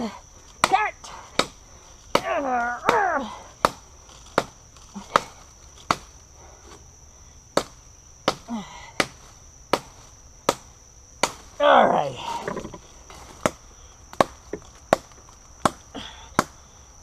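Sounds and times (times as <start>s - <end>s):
knife chopping wood: 0.6s - 6.1s, 12.4s - 16.6s
man grunting: 11.6s - 12.6s.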